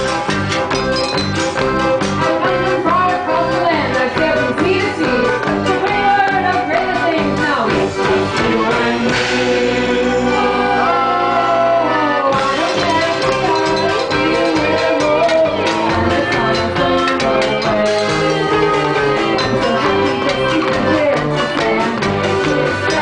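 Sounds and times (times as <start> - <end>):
drums: 0.0 - 23.0
electric guitar: 0.0 - 23.0
woman singing: 2.4 - 9.3, 11.8 - 23.0.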